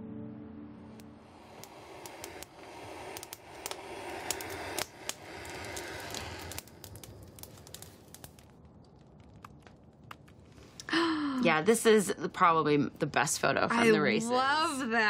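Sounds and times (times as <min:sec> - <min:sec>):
rushing hiss of flame: 0:00.9 - 0:10.9
fire crackling and popping: 0:00.9 - 0:14.9.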